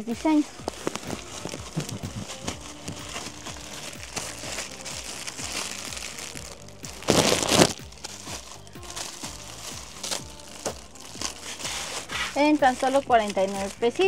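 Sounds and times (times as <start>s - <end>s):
background shop music: 0.0s - 14.0s
merchandise crinkling: 0.0s - 14.0s.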